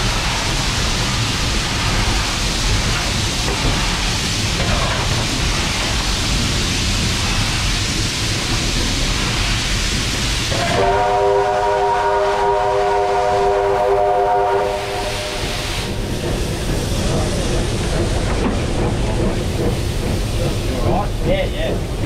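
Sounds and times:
locomotive running noise: 0.0s - 22.0s
steam rushing hiss: 0.0s - 22.0s
steam whistle: 10.5s - 15.6s.

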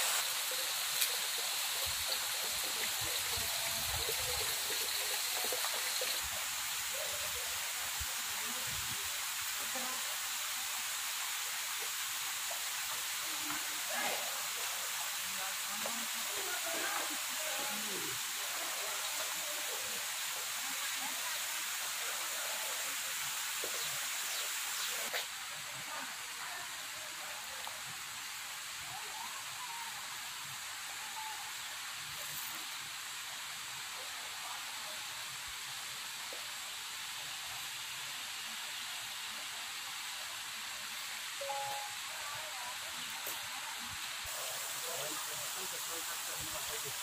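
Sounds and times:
spring water trickling over stone: 0.0s - 25.5s.

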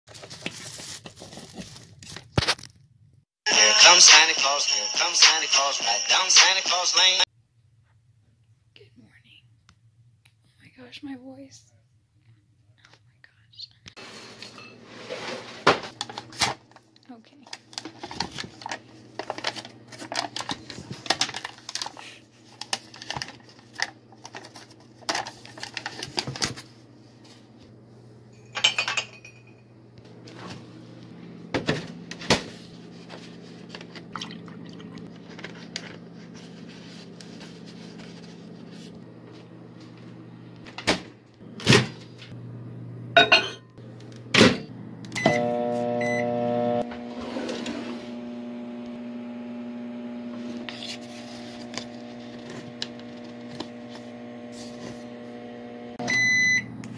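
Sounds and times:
microwave oven humming: 17.8s - 56.9s
dishes clinking and knocking: 28.4s - 29.7s, 43.2s - 43.7s
microwave beep tone: 45.2s - 46.8s, 56.0s - 56.8s.

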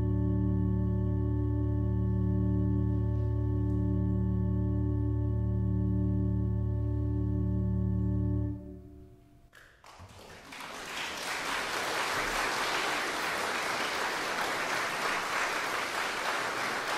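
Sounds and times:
organ chord echoing: 0.0s - 9.5s
audience applause: 9.6s - 16.9s.

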